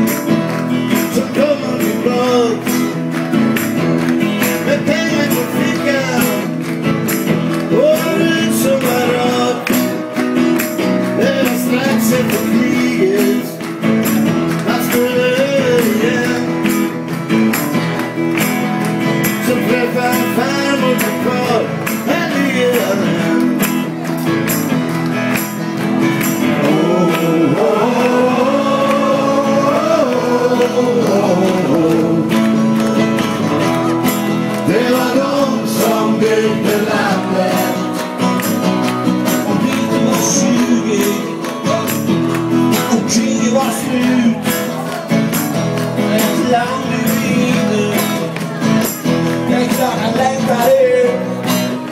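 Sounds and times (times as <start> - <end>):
percussive beat: 0.0 - 51.9
strummed acoustic guitars: 0.0 - 51.9
men singing together: 0.8 - 3.0, 4.4 - 6.6, 7.6 - 10.0, 11.1 - 13.6, 14.5 - 16.9, 19.2 - 23.8, 26.2 - 33.4, 34.4 - 38.5, 39.2 - 44.6, 46.0 - 48.4, 49.4 - 51.4.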